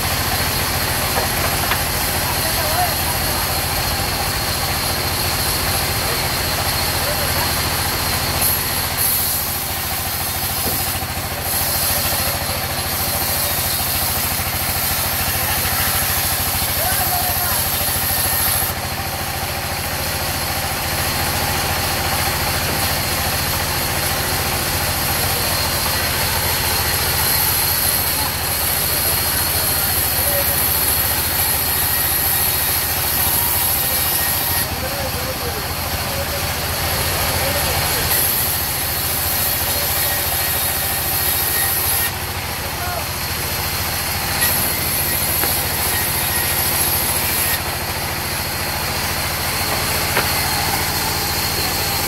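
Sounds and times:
sawmill engine droning: 0:00.0 - 0:52.0
saw ripping a log: 0:07.6 - 0:19.0, 0:21.8 - 0:35.2, 0:36.8 - 0:52.0.

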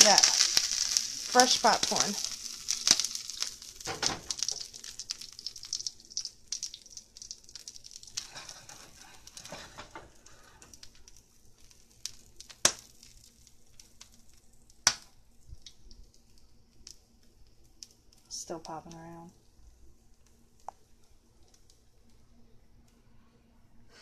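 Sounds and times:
popcorn kernels popping: 0:00.0 - 0:17.0
pan sizzling: 0:00.0 - 0:18.9.

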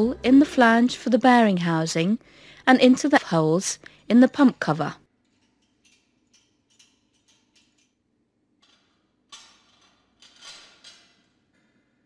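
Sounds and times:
steel plate scraping rattle: 0:08.6 - 0:11.3.

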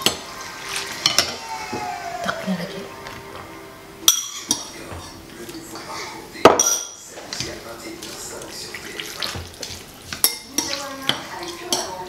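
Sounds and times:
chopsticks and spoon tapping bowl: 0:08.9 - 0:12.0.

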